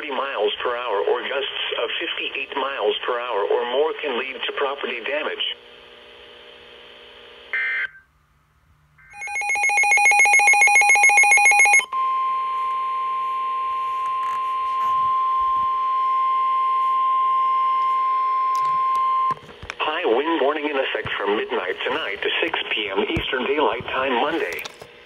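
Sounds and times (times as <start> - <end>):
steady warning alarm tone: 9.1 - 19.4
weather radio pulsing alert beep: 9.1 - 19.4.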